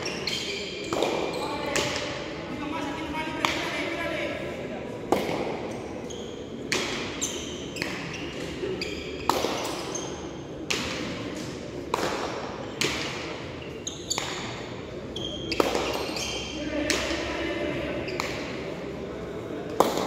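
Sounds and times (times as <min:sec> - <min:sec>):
shoes squeaking on court: 0:00.0 - 0:02.0, 0:05.6 - 0:10.6, 0:13.4 - 0:16.9
low crowd murmur: 0:00.0 - 0:20.0.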